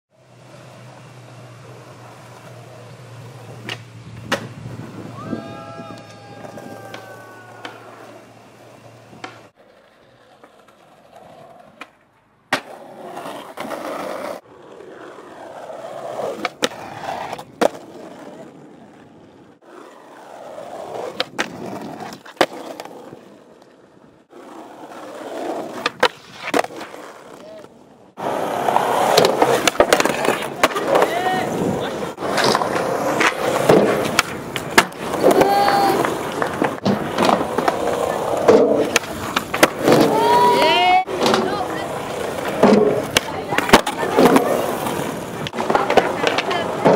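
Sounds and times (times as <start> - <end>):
skateboard wheels rolling on concrete: 0.1 - 46.9
skateboard clacking on ground: 0.5 - 4.6, 5.8 - 46.9.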